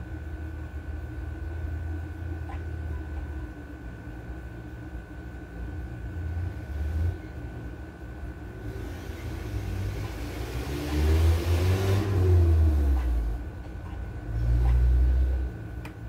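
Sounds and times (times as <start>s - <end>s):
vehicle engine passing: 9.1s - 13.4s.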